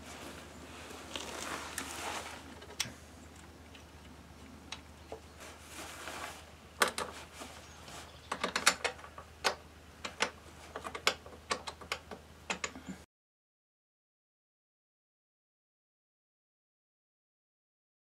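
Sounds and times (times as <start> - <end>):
metallic clicks of hand tools: 8.3 - 13.0.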